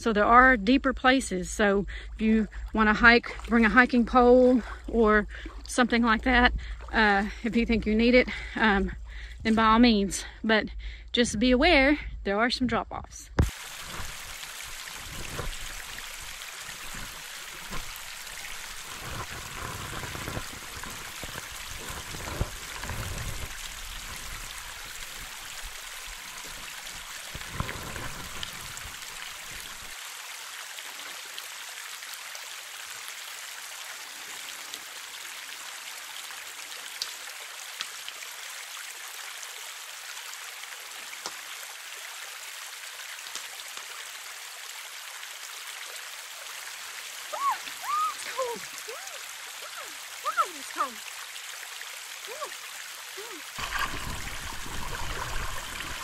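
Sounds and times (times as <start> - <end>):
creek water running over rocks: 0.0 - 10.7, 13.4 - 56.0
low bumps and rumbles: 0.0 - 14.2.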